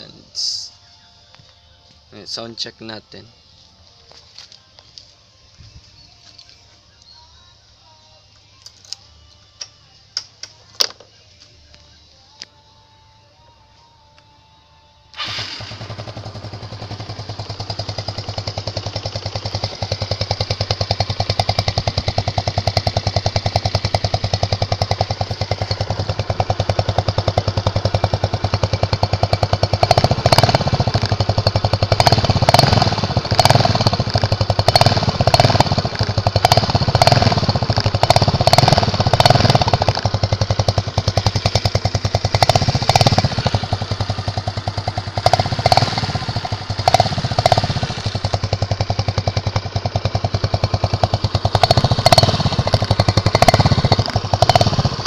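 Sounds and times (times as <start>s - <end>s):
scooter engine starting: 15.1s - 55.0s
scooter engine idling: 15.2s - 55.0s
scooter engine revving: 15.2s - 55.0s.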